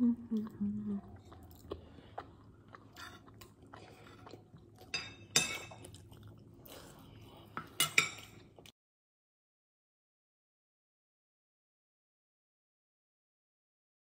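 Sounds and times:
person chewing food: 0.3 - 8.7
steel spoon clinking on plate: 4.9 - 5.8.

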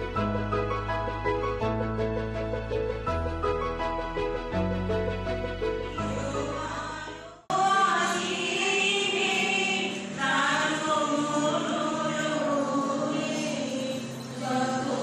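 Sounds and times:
instrumental music track: 0.0 - 7.0
women singing together: 6.1 - 15.0.

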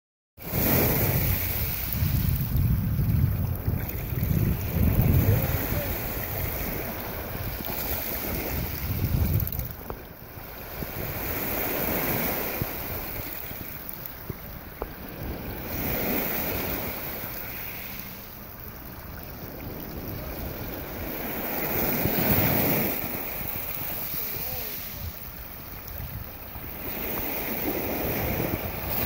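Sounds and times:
surf washing up gravel beach: 0.4 - 29.0
wind buffeting microphone: 0.4 - 29.0.

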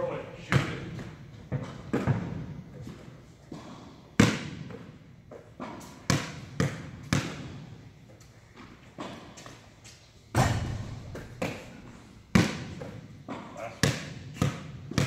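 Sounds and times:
basketball bouncing on hard court: 0.5 - 2.6, 3.6 - 4.9, 5.6 - 7.6, 10.4 - 15.0.

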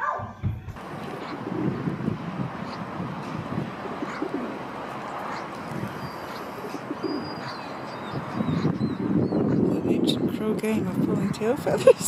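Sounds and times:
pigeons cooing: 0.8 - 9.8
small birds chirping: 0.8 - 11.5.

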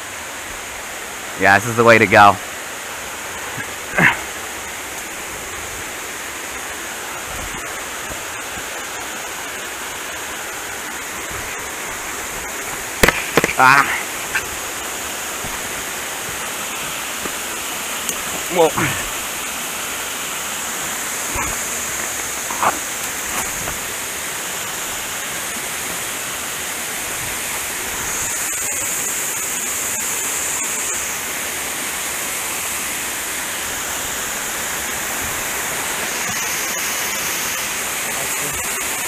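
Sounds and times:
stream rushing over rocks: 0.0 - 39.0.

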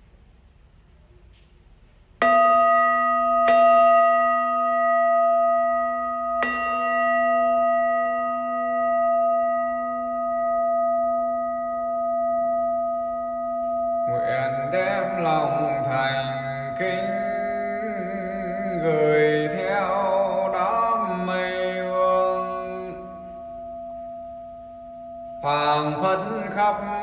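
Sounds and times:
bowl bell ringing: 2.2 - 27.0.

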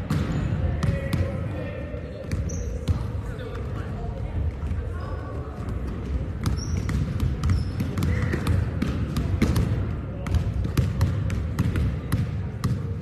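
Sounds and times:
volleyballs slapping and bouncing: 0.0 - 13.0
shoe squeaks: 2.4 - 2.9, 6.5 - 8.2.

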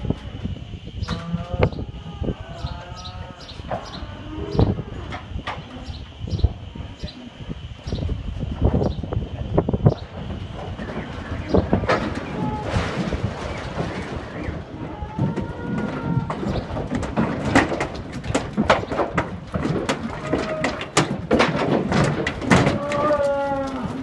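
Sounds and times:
hooves knocking on metal floor: 9.7 - 24.0.

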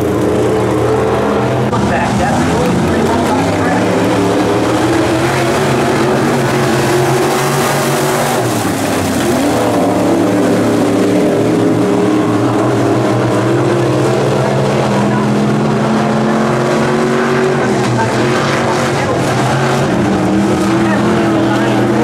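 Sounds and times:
race car engines roaring: 0.0 - 22.0.

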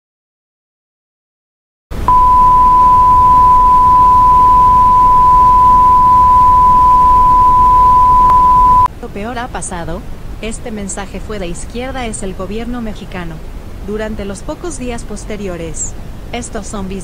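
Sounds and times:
steady electronic tone: 2.1 - 8.9.

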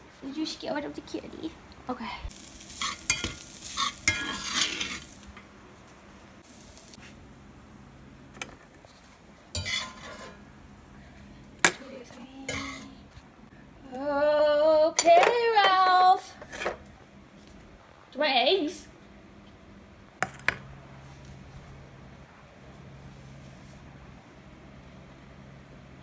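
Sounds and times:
metal spoon scraping skillet: 2.6 - 5.2, 9.6 - 10.4, 12.5 - 13.0.

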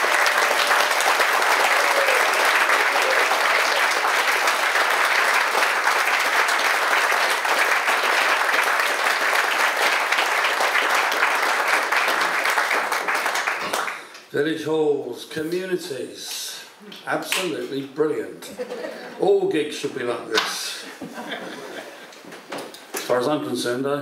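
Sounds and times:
audience applauding: 0.0 - 14.2.

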